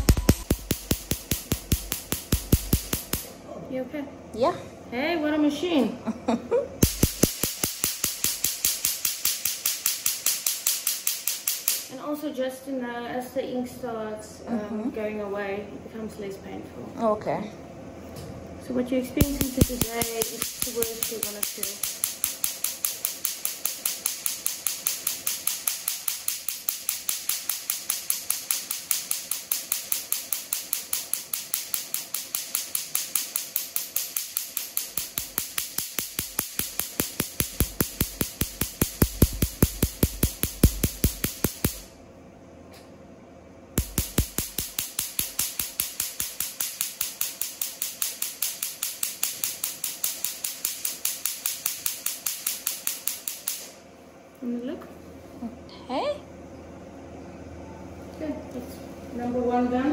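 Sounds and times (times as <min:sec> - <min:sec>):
laser firing rapid snapping pulses: 0:00.0 - 0:03.3, 0:06.8 - 0:11.9, 0:19.2 - 0:41.9, 0:43.8 - 0:53.8.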